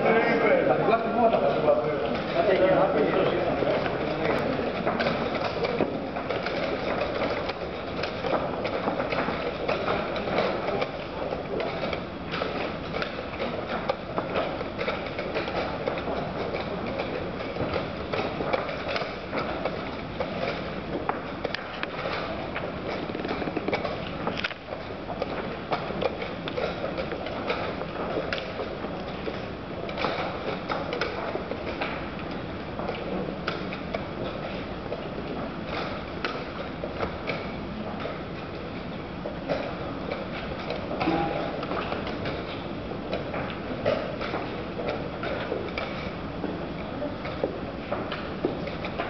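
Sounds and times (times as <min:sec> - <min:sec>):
hall background noise: 0:00.0 - 0:49.0
room noise: 0:00.0 - 0:49.0
chess pieces clattering on boards: 0:03.5 - 0:38.6.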